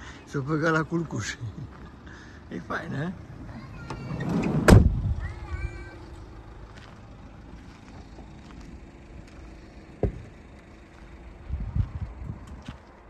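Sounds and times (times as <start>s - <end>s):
low outdoor rumble: 0.0s - 13.0s
footsteps: 6.6s - 13.0s.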